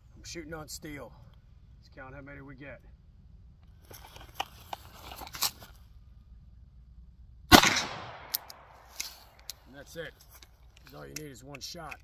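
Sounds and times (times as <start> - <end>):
gunshot with echo: 7.5 - 8.7.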